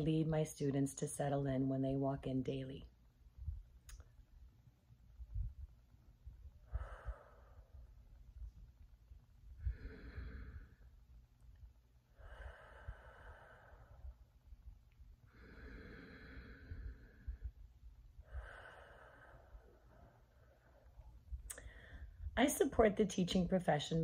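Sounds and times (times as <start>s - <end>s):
faint low rumble: 0.0s - 24.0s
woman breathing deeply: 6.4s - 8.5s, 9.5s - 11.1s, 12.0s - 22.4s.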